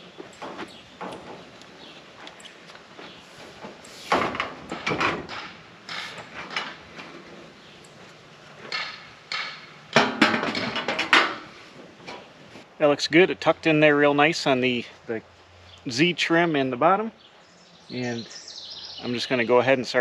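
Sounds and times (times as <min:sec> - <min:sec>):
metal siding panel clattering: 0:03.0 - 0:07.6, 0:08.6 - 0:12.4.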